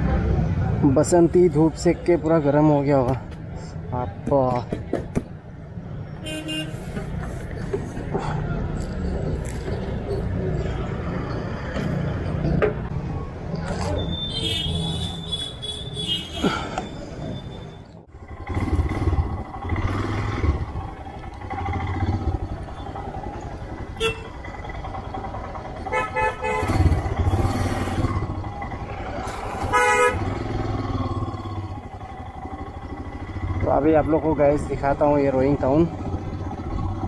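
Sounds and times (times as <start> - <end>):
wind and road noise: 0.0 - 37.0
vehicle horn toot: 6.2 - 6.8, 14.0 - 16.5, 24.0 - 24.4, 25.9 - 26.9, 29.7 - 30.3
motorcycle engine running: 18.1 - 37.0.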